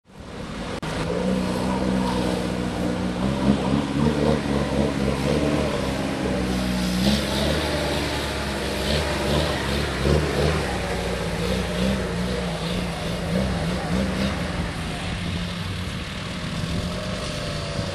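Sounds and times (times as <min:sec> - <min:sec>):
water splashing around wheels: 0:00.1 - 0:17.9
engine revving under load: 0:00.2 - 0:17.9.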